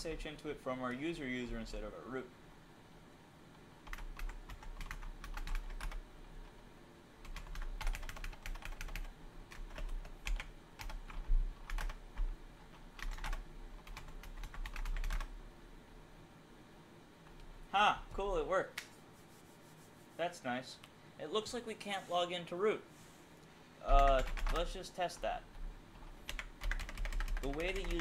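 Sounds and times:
typing on computer keyboard: 3.8s - 6.0s, 7.2s - 15.3s, 23.9s - 24.7s, 26.2s - 28.0s.

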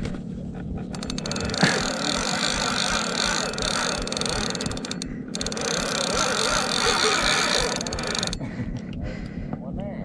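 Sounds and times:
fishing reel clicking whir: 0.9s - 8.5s.

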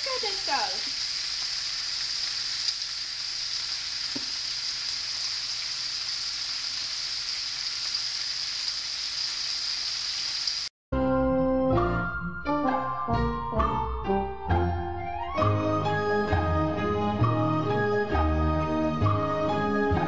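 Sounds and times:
meat sizzling in hot oil: 0.0s - 10.7s
instrumental music: 11.0s - 20.0s.

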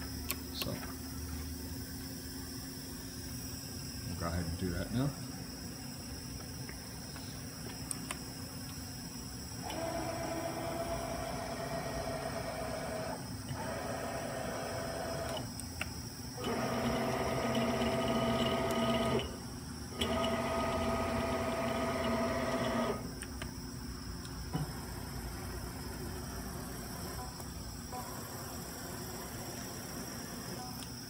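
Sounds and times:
cnc mill servo drives whining: 9.6s - 15.5s.

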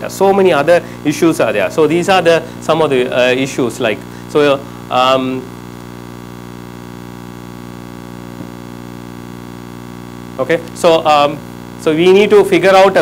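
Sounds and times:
man speaking: 0.0s - 5.5s, 10.4s - 13.0s
electrical mains hum: 0.0s - 13.0s.

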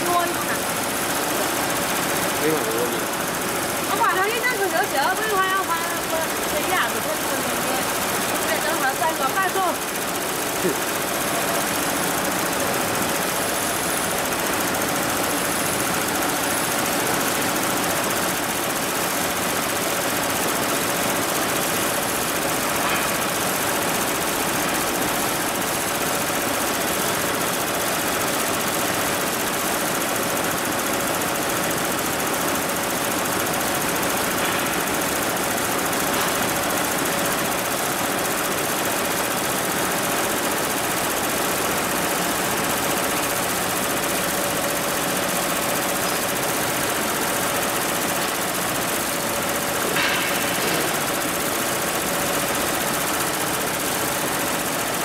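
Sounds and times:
embroidery machine needle clatter: 0.0s - 55.0s.

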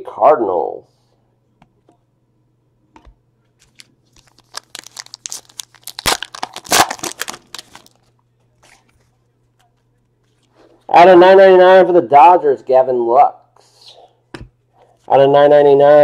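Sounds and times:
foil wrapper tearing and crinkling: 3.6s - 8.0s.

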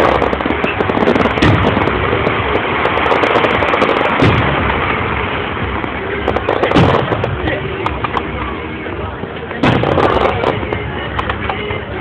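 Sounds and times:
loud firework bangs: 0.0s - 8.1s, 9.6s - 10.9s
fireworks popping: 0.0s - 12.0s.

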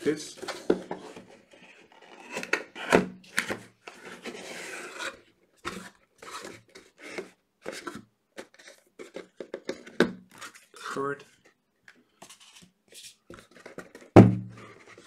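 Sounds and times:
cardboard lid scraping open: 0.4s - 8.0s.

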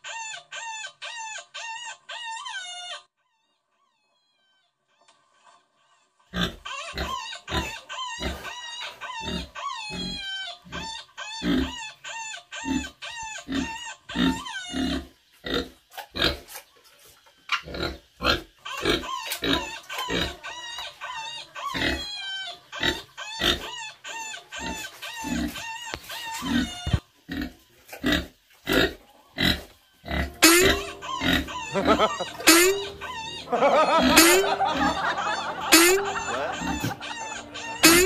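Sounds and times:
pig grunting and oinking: 6.3s - 16.6s, 17.5s - 38.0s
high wavering chirp-like calls: 30.0s - 38.0s.

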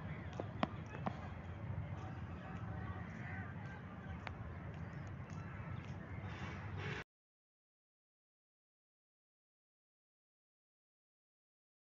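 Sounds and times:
faint distant voices: 0.0s - 7.0s.

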